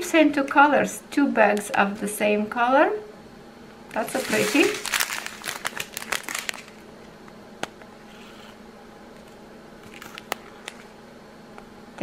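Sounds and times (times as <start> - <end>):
low steady hum: 0.0 - 12.0
plastic bag clicks: 3.9 - 6.8.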